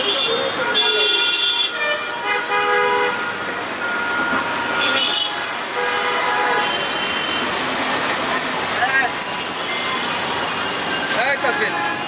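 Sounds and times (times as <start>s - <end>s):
vehicle horns: 0.0s - 8.6s
street traffic: 0.0s - 12.0s.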